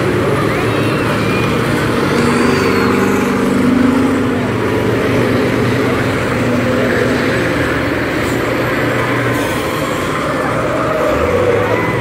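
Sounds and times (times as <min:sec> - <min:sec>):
bus engines running hard: 0:00.0 - 0:12.0.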